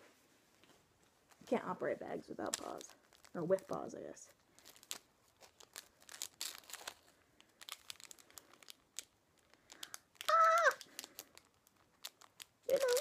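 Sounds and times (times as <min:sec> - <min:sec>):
plastic bag crinkling: 0:01.2 - 0:13.0
high-pitched vocal whine: 0:10.3 - 0:10.8.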